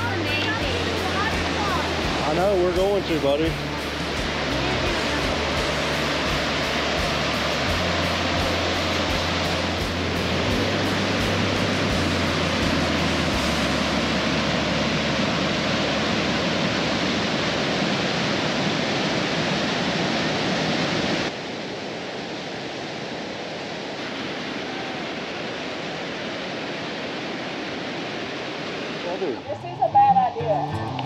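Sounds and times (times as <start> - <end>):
waterfall rushing: 0.0 - 31.0.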